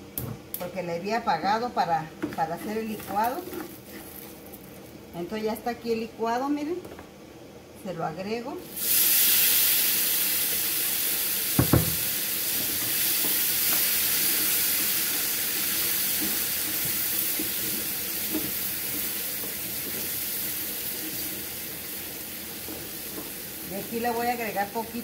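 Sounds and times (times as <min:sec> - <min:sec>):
tomato puree sizzling in hot oil: 0:08.6 - 0:25.0
sharp knock: 0:11.6 - 0:12.0.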